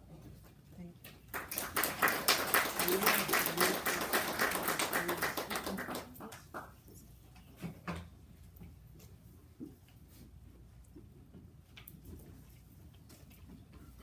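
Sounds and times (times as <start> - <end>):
audience applauding: 1.3 - 6.7.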